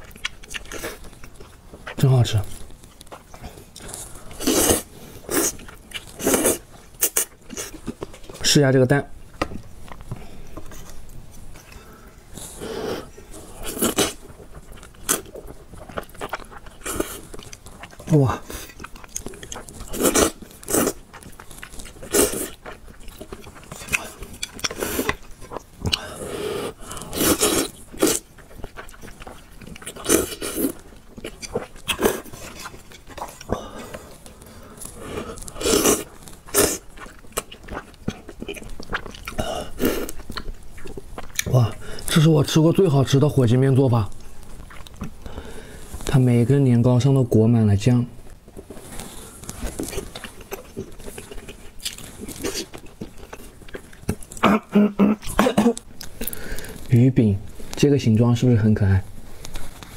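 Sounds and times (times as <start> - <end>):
wet chewing: 0.0 - 8.4, 9.3 - 43.2, 44.0 - 46.2, 48.6 - 56.9
slurping noodles: 26.0 - 28.3, 31.9 - 36.9.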